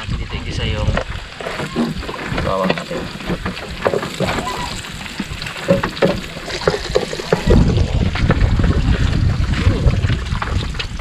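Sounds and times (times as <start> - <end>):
wind buffeting microphone: 0.0 - 11.0
food sizzling: 1.4 - 7.8
wooden spoon scraping a pan: 1.4 - 7.8.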